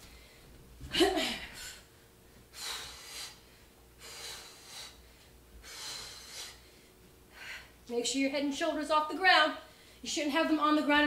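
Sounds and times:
woman breathing hard: 0.0 - 7.9.

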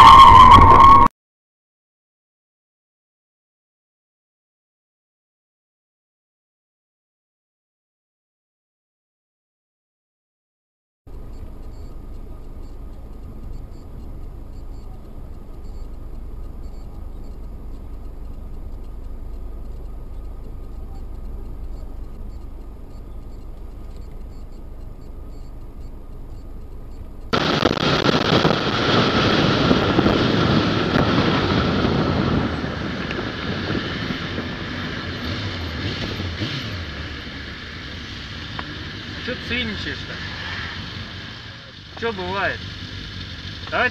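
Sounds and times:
wind and road noise rush: 0.0 - 1.1, 11.1 - 43.9
engine and road rumble: 11.1 - 43.9.

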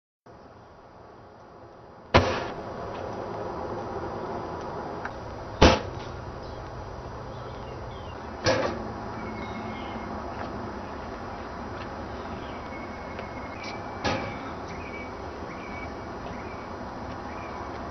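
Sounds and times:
smoke cannon thumps: 2.2 - 2.6.

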